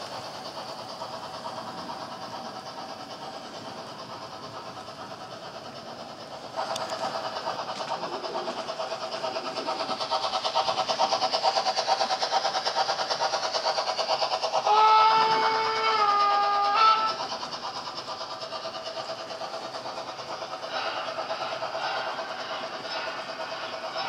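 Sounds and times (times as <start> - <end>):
model train running clatter: 0.0 - 24.0.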